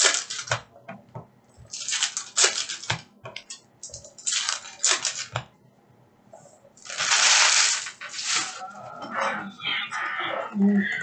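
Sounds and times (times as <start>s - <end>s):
foil wrappers crinkling and tearing: 0.0s - 0.5s, 1.7s - 2.9s, 4.1s - 5.3s, 6.8s - 8.6s
cards rustling and slapping: 1.7s - 3.5s, 4.1s - 5.4s, 6.8s - 8.6s.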